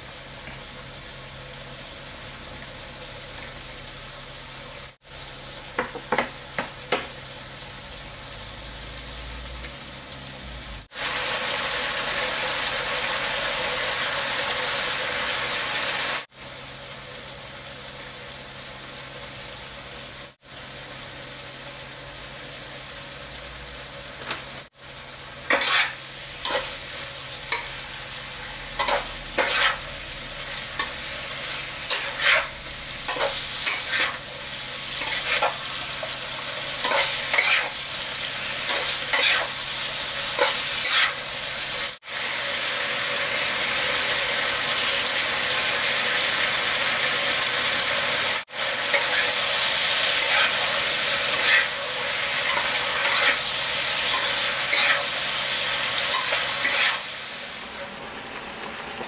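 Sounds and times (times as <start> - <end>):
food sizzling in a wok: 0.0 - 59.0
spatula scraping a pan: 25.5 - 26.9, 28.7 - 30.0, 31.8 - 34.2, 34.9 - 36.2, 36.8 - 37.8, 38.6 - 39.6, 40.4 - 41.2, 50.1 - 55.2, 56.1 - 57.1.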